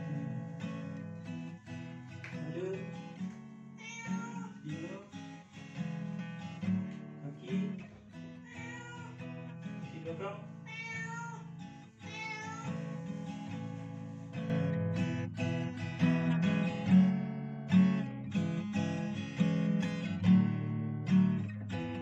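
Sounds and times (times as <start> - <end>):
acoustic guitar music: 0.0 - 22.0
cat meowing: 3.8 - 4.6, 8.4 - 9.2, 10.7 - 12.9.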